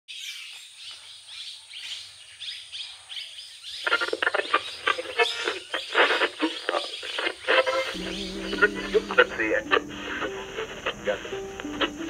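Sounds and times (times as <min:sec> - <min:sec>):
birds chirping: 0:00.1 - 0:12.0
louder busier sound: 0:07.9 - 0:12.0.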